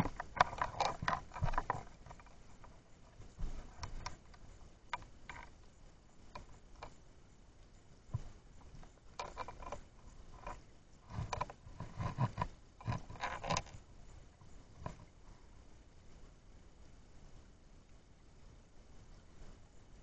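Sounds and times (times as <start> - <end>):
underwater clicks and knocks: 0.0 - 5.6, 8.1 - 13.8.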